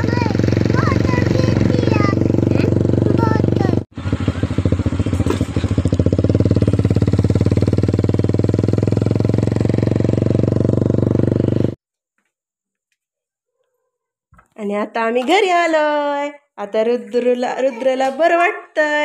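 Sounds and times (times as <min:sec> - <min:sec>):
motorcycle engine running: 0:00.0 - 0:11.8.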